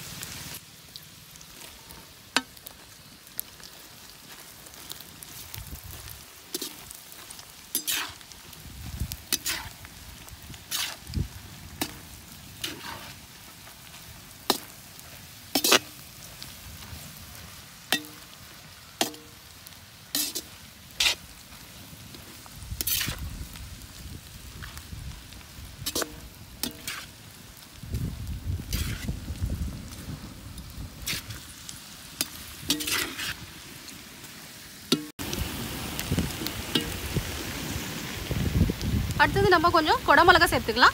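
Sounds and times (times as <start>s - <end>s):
faint sizzle: 0.0s - 40.9s
metal skimmer scraping a wok: 7.6s - 8.3s, 9.3s - 9.8s, 10.6s - 11.1s, 12.6s - 13.2s, 15.5s - 16.0s, 20.1s - 21.2s, 22.8s - 23.2s, 25.8s - 27.2s, 28.6s - 29.1s, 31.0s - 31.4s, 32.2s - 33.4s.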